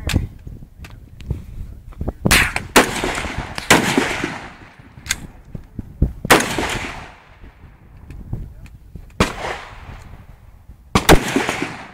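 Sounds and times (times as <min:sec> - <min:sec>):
loud gunshots with echo: 0:02.3 - 0:04.8, 0:06.3 - 0:07.4, 0:09.2 - 0:10.0, 0:10.9 - 0:11.9.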